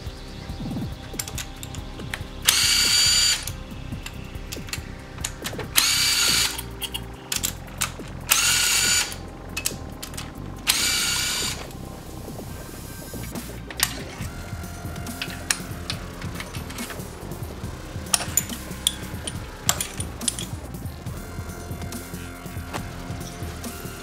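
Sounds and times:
power driver motor whine: 0.5s - 7.2s, 8.3s - 9.2s, 10.7s - 11.9s
metallic clicks and rattles: 1.1s - 11.8s, 15.0s - 21.1s.

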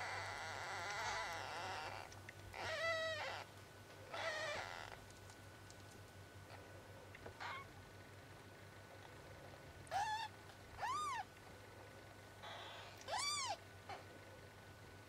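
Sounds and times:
kittens mewing: 9.9s - 11.3s, 12.4s - 14.1s.

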